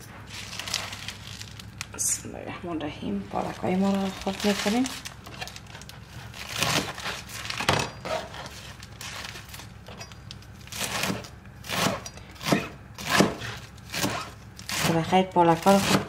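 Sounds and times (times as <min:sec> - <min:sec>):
spinach leaves rustling: 0:00.2 - 0:02.2, 0:03.1 - 0:07.6.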